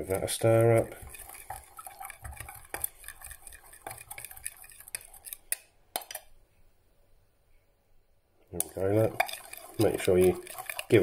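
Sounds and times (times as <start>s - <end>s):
stick stirring against glass: 0.1s - 6.3s, 8.6s - 11.0s.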